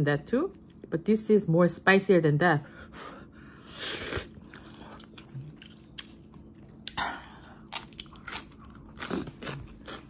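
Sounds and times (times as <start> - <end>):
wet chewing: 4.2 - 10.0.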